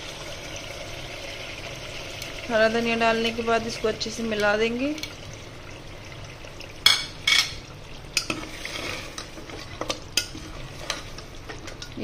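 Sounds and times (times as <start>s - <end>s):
stew sizzling: 0.0s - 12.0s
spoon scraping and clinking pot: 6.9s - 7.6s, 8.2s - 12.0s.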